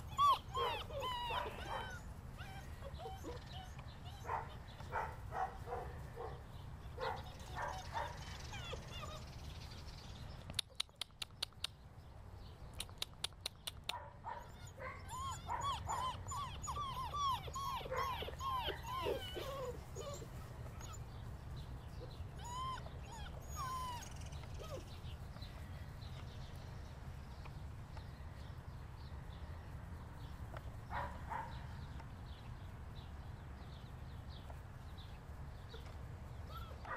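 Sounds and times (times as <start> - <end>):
puppies whimpering and yipping: 0.0 - 5.1, 6.9 - 9.9, 14.3 - 25.4, 35.7 - 36.9
sharp clicks: 10.4 - 11.8, 12.7 - 14.0.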